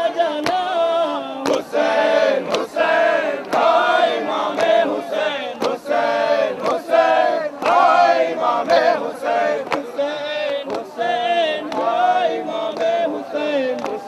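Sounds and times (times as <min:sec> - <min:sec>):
man chanting into a microphone: 0:00.0 - 0:01.8
group of men singing: 0:00.0 - 0:14.0.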